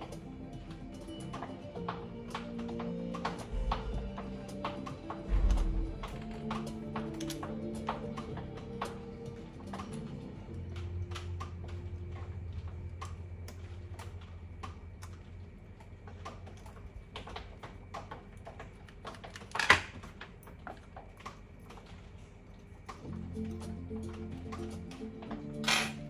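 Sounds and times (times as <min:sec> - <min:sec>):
low hum: 0:00.0 - 0:16.0.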